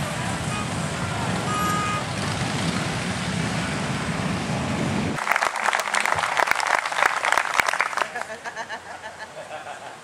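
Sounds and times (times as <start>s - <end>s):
traffic engines rumbling: 0.0s - 10.0s
crowd applauding: 5.2s - 8.6s.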